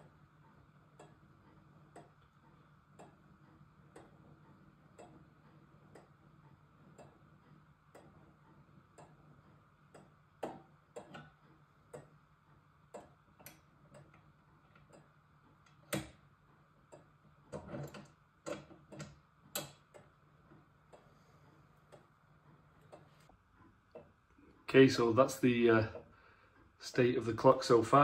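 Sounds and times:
clock ticking: 0:00.0 - 0:17.3, 0:23.9 - 0:26.1, 0:26.8 - 0:28.0.

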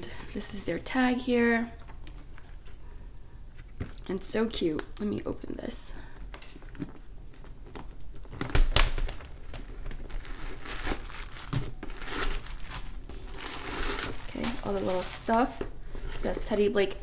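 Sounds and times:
packing paper crumpling: 0:07.3 - 0:15.8.

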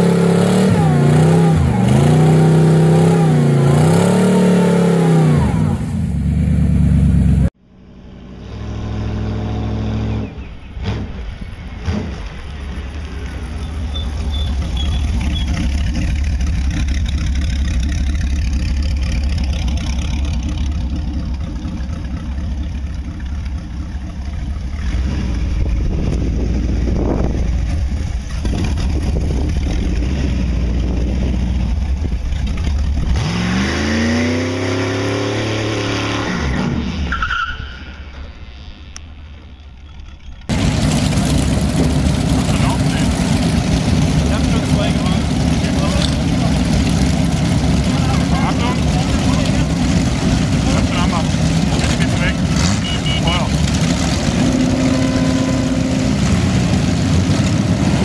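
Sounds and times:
motorcycle engine revving hard: 0:00.0 - 0:07.5, 0:24.7 - 0:37.1, 0:40.5 - 0:58.0
motorcycle engine rumbling: 0:00.0 - 0:58.0.

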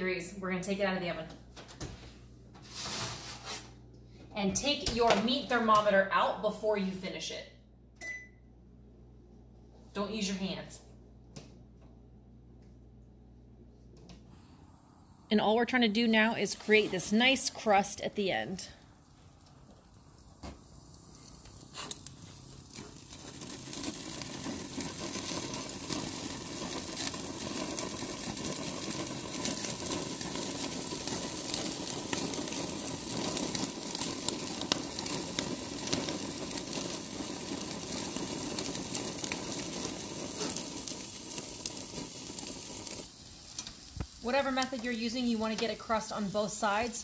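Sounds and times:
steak sizzling on a grill: 0:20.4 - 0:47.0
fat spitting and crackling: 0:20.9 - 0:24.0, 0:40.3 - 0:40.8.

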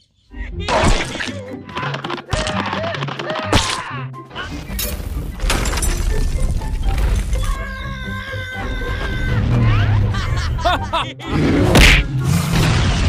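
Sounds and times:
cartoon background music: 0:00.1 - 0:13.0
crash and smash effects: 0:11.5 - 0:13.0.

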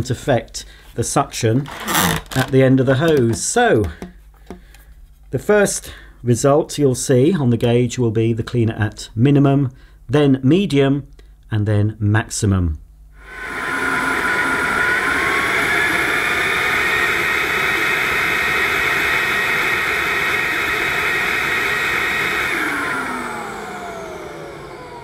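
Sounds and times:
vacuum cleaner motor whining: 0:01.7 - 0:02.5, 0:13.2 - 0:25.0.

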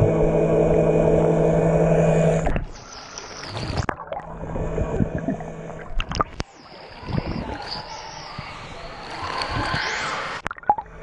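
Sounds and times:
underwater motor whining: 0:00.0 - 0:11.0
bubbling sloshing water: 0:02.4 - 0:08.5, 0:09.1 - 0:11.0.

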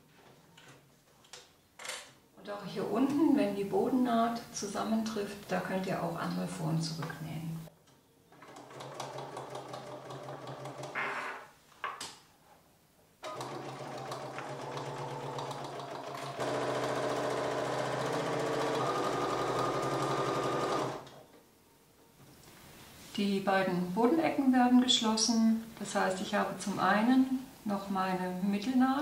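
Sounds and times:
sewing machine stitching: 0:08.4 - 0:11.0, 0:13.2 - 0:21.1.

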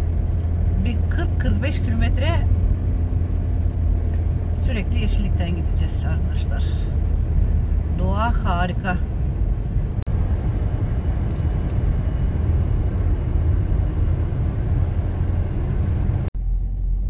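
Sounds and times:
car road and engine rumble: 0:00.0 - 0:17.0.

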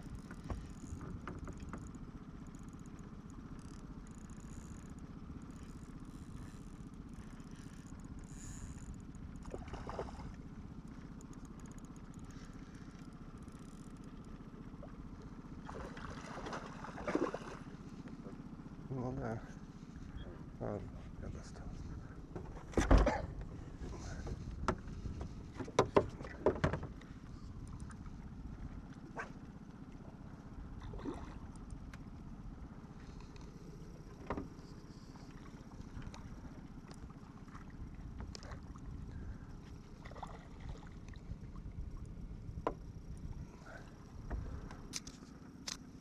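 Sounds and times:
steady low rumble: 0:00.0 - 0:45.8
fishing gear knocking on boat: 0:24.6 - 0:27.0.

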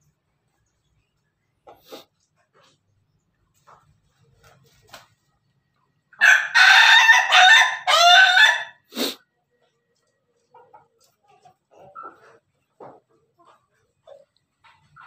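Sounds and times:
rooster crowing: 0:06.2 - 0:08.9.

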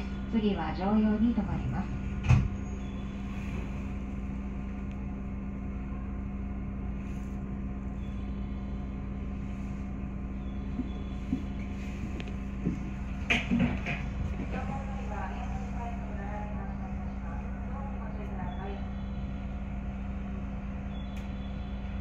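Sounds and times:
electric train running rumble: 0:00.0 - 0:22.0
wheels knocking on rails: 0:12.6 - 0:14.8.

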